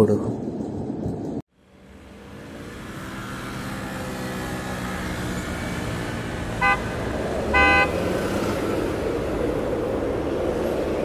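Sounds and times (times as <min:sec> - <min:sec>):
road traffic engine hum: 0:00.1 - 0:11.0
vehicle horn honking: 0:06.6 - 0:08.0.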